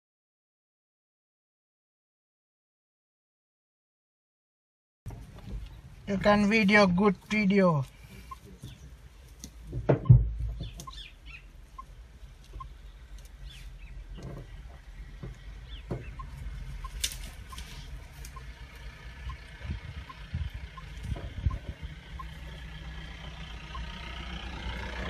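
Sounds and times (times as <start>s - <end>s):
vehicle engine idling: 5.1s - 25.0s
birds calling and chirping: 7.3s - 25.0s
heavy thump: 9.7s - 10.7s.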